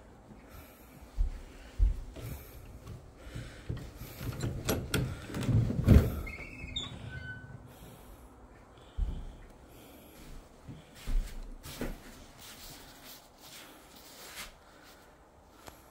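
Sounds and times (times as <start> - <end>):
wooden doors rattling and knocking: 3.3 - 7.1
door hinges squeaking: 4.2 - 7.7.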